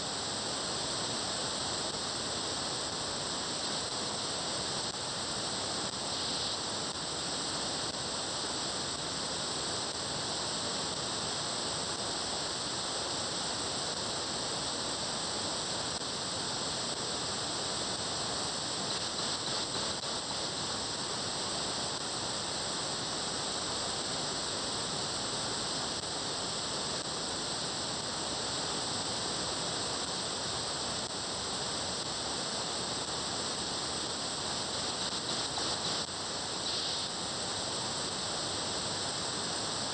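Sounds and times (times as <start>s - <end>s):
radio static hiss: 0.0s - 39.9s.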